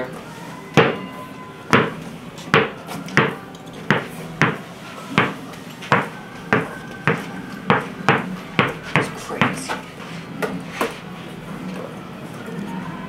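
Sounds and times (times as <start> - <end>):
basketball bouncing on carpet: 2.5 - 4.6, 5.2 - 9.7.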